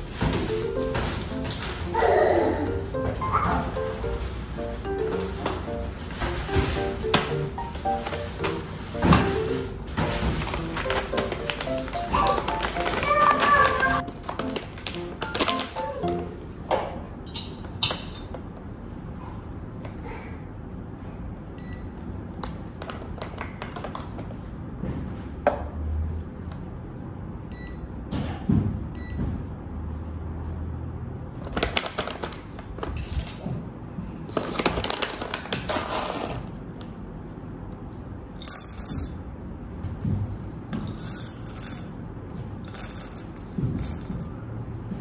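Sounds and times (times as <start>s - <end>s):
foil bag crinkling: 0.0s - 15.9s
coffee beans rattling: 38.4s - 39.2s, 40.8s - 41.9s, 42.7s - 44.2s
metal tools clinking: 38.4s - 39.2s, 40.8s - 41.9s, 42.7s - 44.3s.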